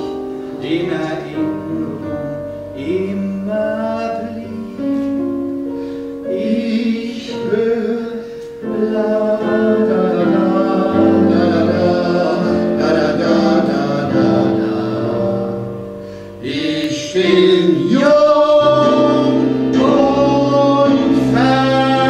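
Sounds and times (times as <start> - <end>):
instrumental accompaniment: 0.0 - 22.0
person singing long notes: 6.2 - 22.0.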